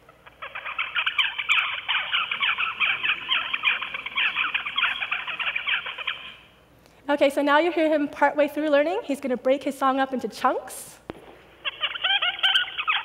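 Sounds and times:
young finch babbling over loudspeakers: 0.2s - 6.5s, 11.6s - 13.0s.

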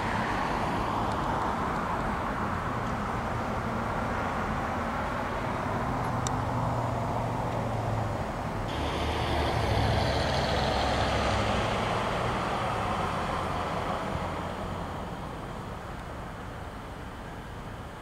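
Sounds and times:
road noise: 0.0s - 18.0s
vehicle engine running: 8.7s - 16.0s.

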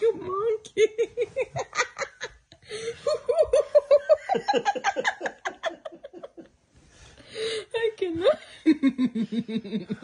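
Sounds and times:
person laughing heartily: 0.7s - 6.5s.

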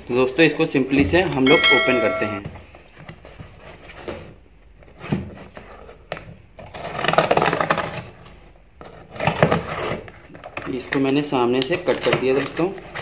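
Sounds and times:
sharp clicks: 1.0s - 1.5s.

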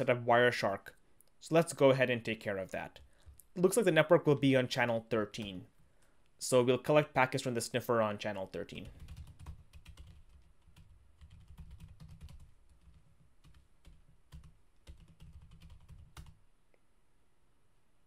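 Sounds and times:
faint keyboard typing: 2.9s - 3.6s, 8.7s - 16.4s.

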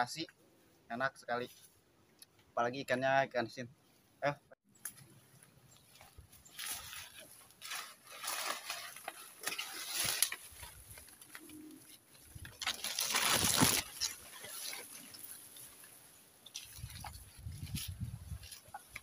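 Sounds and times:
footsteps through undergrowth: 4.9s - 19.0s
dry leaves rustling: 5.7s - 19.0s.

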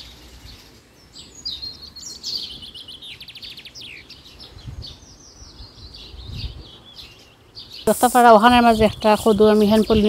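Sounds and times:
songbird singing: 0.0s - 10.0s.

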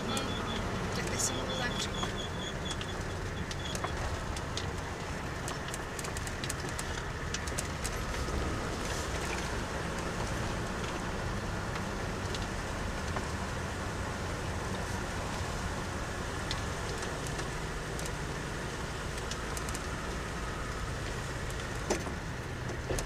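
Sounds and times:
sharp clicks and rattles: 0.0s - 8.4s, 16.4s - 20.2s
car engine and road rumble: 0.0s - 23.0s.

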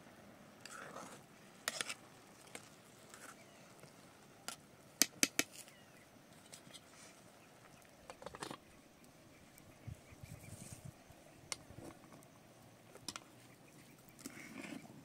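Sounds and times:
faint outdoor background: 0.0s - 15.0s.

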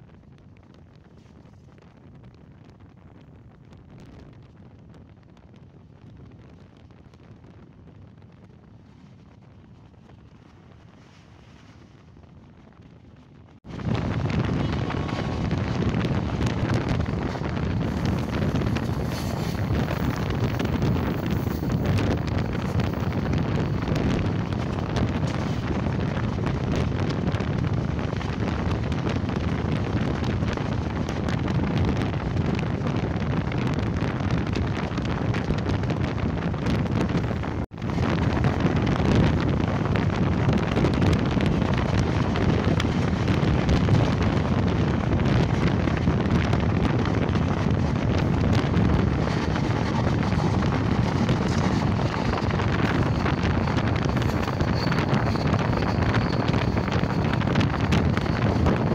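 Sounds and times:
wind buffeting microphone: 0.0s - 58.9s
train running noise: 13.7s - 58.9s.

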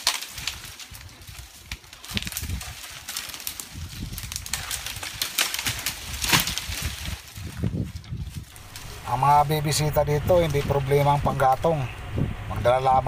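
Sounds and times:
twigs snapping: 0.0s - 9.1s
footsteps crunching dry leaves: 0.0s - 11.4s
low uneven rumble: 7.4s - 13.0s.

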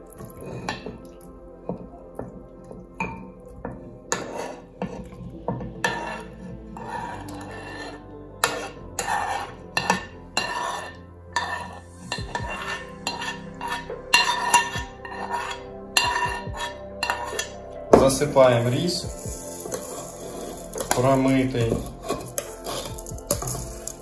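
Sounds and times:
metal spoon scraping frying pan: 4.1s - 5.2s, 5.8s - 17.6s, 18.3s - 24.0s.

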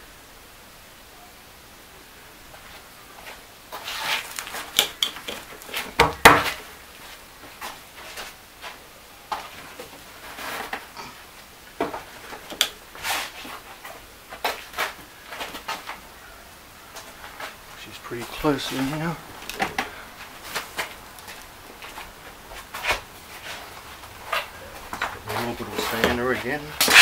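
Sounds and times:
knocks and scrapes on concrete: 22.6s - 27.0s.

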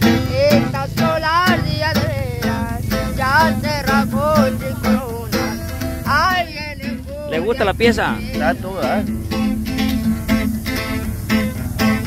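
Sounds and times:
woman singing: 0.0s - 9.1s
strummed acoustic guitar: 0.0s - 12.0s.

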